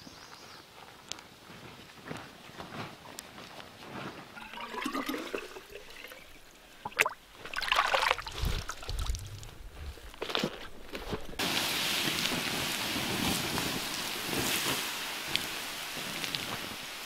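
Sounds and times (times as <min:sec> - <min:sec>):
bottle filling with water: 0:04.4 - 0:09.4
water dripping: 0:04.4 - 0:10.2
water splashing and trickling: 0:04.4 - 0:17.0.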